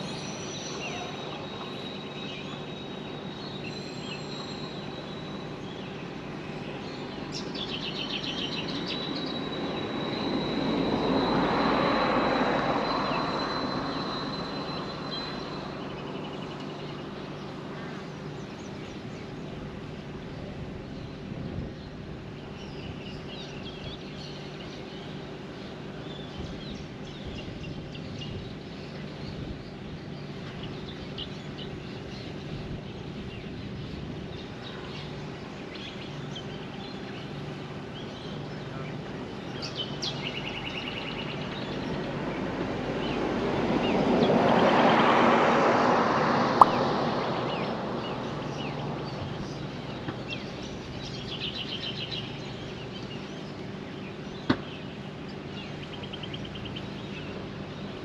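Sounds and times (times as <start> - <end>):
birds chirping: 0.0 - 45.1, 46.6 - 58.0
vehicle passing: 42.3 - 49.6.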